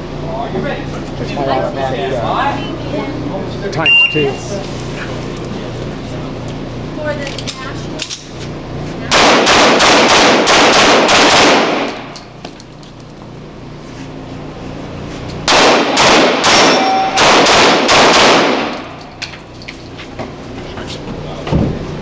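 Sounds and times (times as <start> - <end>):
pistol shots echoing indoors: 9.1 - 12.3, 15.5 - 19.0.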